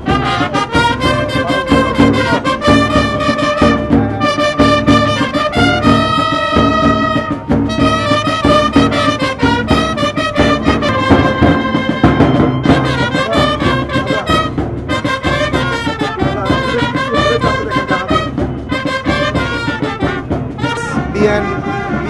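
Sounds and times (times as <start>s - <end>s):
brass band playing lively tune: 0.0s - 22.0s.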